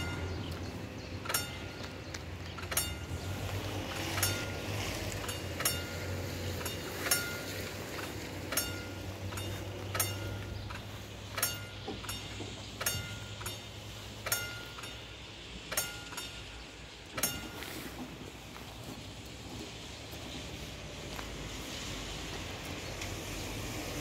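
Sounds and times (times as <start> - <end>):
railroad crossing bells: 0.0 - 24.0.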